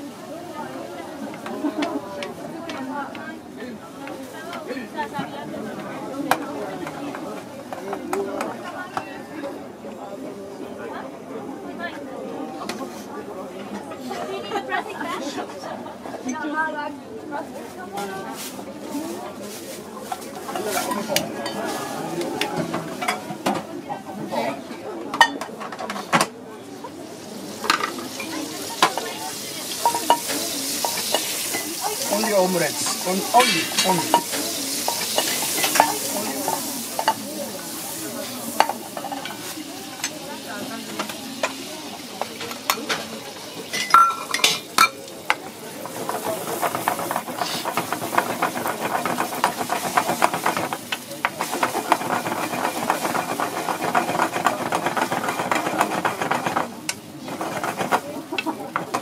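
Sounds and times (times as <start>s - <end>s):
butter sizzling in frying pan: 27.0s - 59.0s
egg sizzling: 27.1s - 59.0s.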